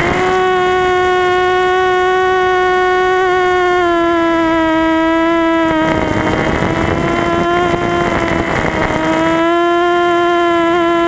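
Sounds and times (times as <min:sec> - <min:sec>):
drone propellers whining: 0:00.0 - 0:11.0
wind rushing: 0:04.5 - 0:09.5.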